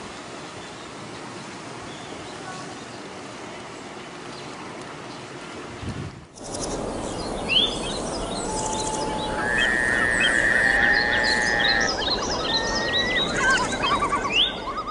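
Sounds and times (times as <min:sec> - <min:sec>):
steady background hiss: 0:06.3 - 0:14.9
birds chirping and calling: 0:06.4 - 0:14.9.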